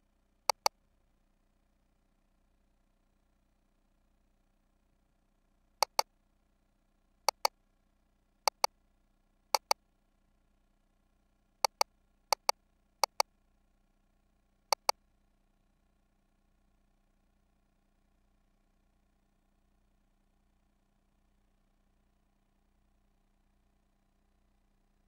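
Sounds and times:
button clicking: 5.8s - 6.0s, 8.5s - 8.7s, 9.6s - 9.8s, 12.4s - 13.2s.

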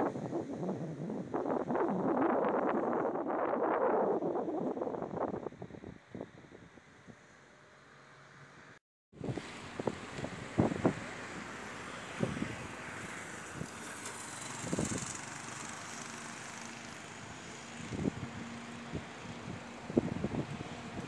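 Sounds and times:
wind buffeting microphone: 0.0s - 7.3s, 9.2s - 11.2s, 12.1s - 12.7s, 14.5s - 15.3s, 17.7s - 21.0s
road traffic hiss: 6.9s - 21.0s.

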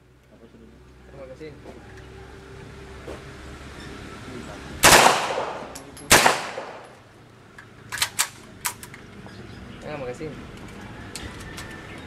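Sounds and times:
gunshots with long echo: 4.8s - 7.0s.

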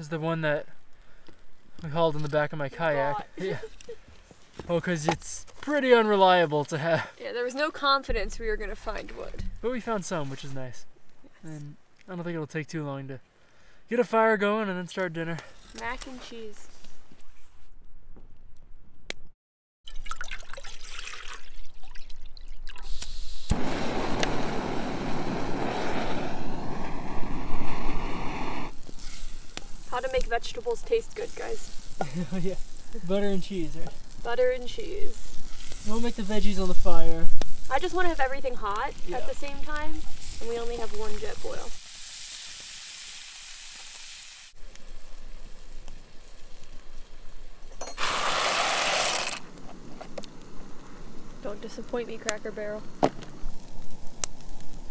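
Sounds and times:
water pouring into metal pot: 19.9s - 22.9s
stove burner hissing: 22.8s - 54.9s
open fire roaring: 23.5s - 54.9s
vegetables sizzling in a frying pan: 28.7s - 47.4s.

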